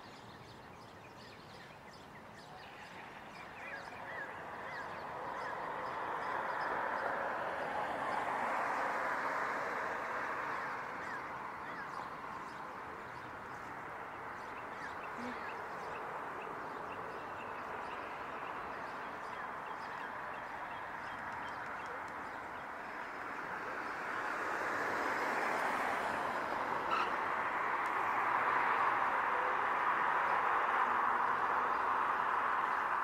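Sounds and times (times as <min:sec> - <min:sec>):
outdoor background noise: 0:00.0 - 0:33.0
small birds chirping: 0:10.6 - 0:23.6.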